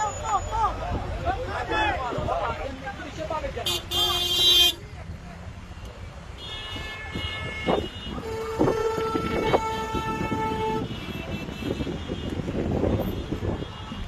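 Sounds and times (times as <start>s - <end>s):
traffic rumble: 0.0s - 14.0s
high-pitched car horn: 6.4s - 14.0s.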